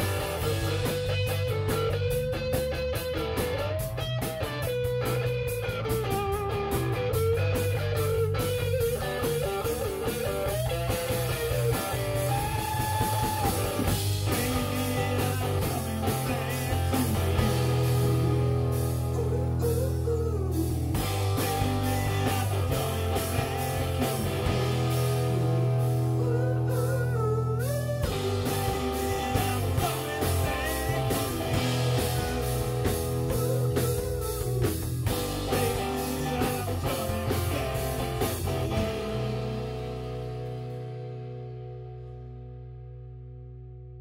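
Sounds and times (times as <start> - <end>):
drum kit beat: 0.0 - 41.3
rock band playing live: 0.0 - 43.5.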